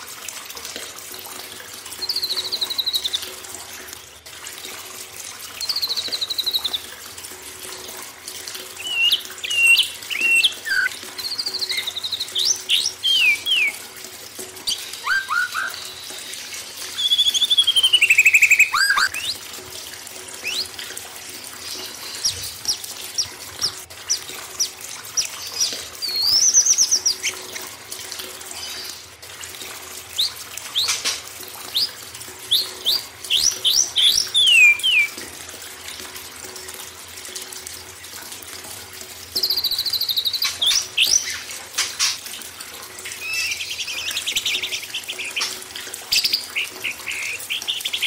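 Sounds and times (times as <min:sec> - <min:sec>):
running water: 0:00.0 - 0:48.0
songbirds calling: 0:08.8 - 0:13.8, 0:14.6 - 0:19.4, 0:30.2 - 0:35.2, 0:43.1 - 0:48.0.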